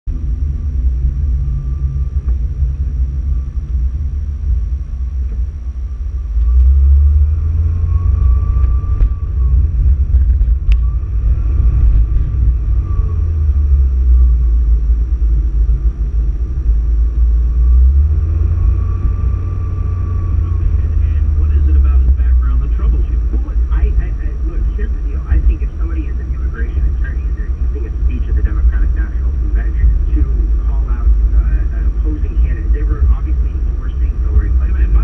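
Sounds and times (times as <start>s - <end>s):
car road and engine rumble: 0.0s - 35.0s
faint whine: 0.0s - 35.0s.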